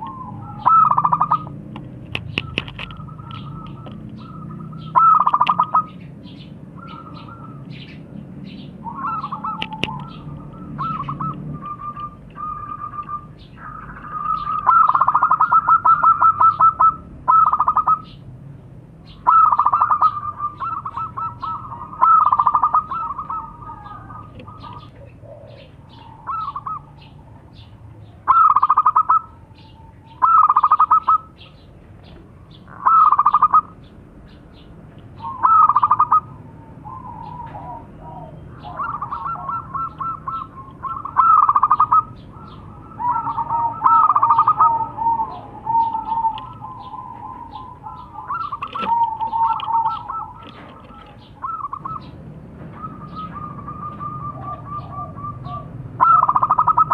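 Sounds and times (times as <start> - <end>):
doves cooing: 0.0 - 56.9
low steady coo: 19.3 - 27.6, 35.2 - 52.0, 52.8 - 56.9.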